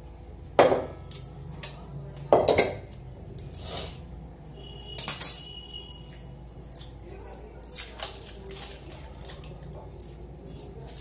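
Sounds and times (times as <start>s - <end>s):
thin high ringing tone: 4.6s - 6.1s.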